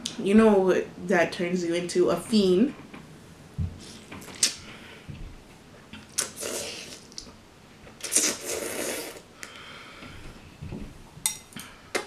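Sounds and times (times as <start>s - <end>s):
slurping noodles: 6.1s - 7.2s, 8.0s - 9.3s.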